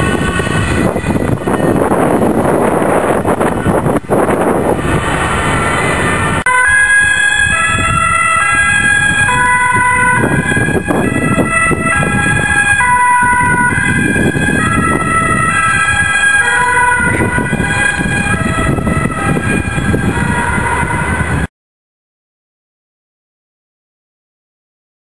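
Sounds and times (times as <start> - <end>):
road traffic and engine rumble: 0.0 - 21.5
two-tone siren: 0.0 - 21.5.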